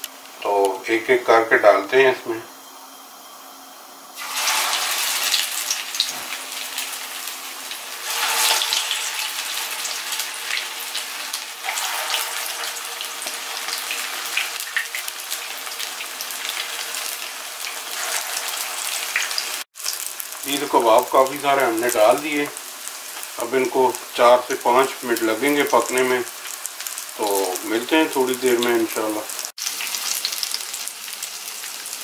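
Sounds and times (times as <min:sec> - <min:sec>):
kababs sizzling in hot oil: 0:04.2 - 0:32.0.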